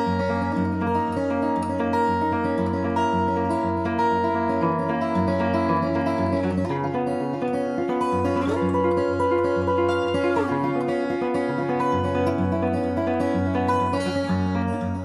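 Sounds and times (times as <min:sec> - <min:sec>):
fingerstyle acoustic guitar: 0:00.0 - 0:15.0.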